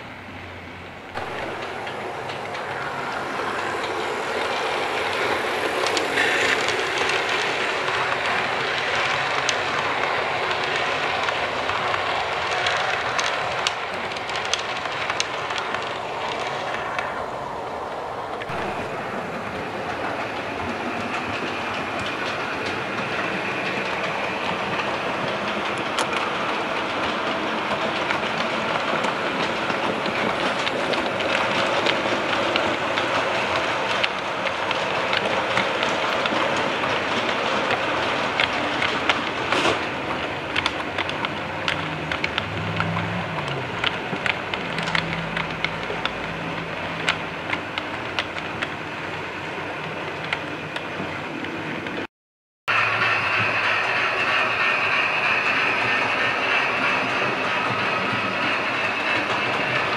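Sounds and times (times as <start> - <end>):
model train wheels rumbling on rail: 0.0 - 52.1, 52.7 - 59.9
clicking over rail joints: 18.3 - 52.1.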